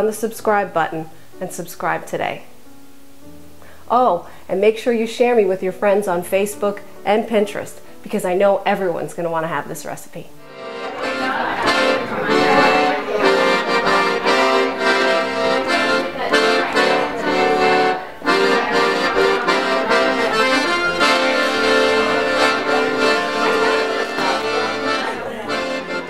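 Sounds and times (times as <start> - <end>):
piano accordion playing: 10.3 - 26.0.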